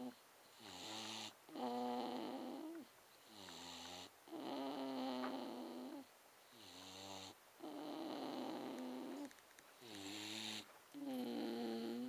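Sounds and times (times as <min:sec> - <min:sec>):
dog snoring: 0:00.0 - 0:12.0.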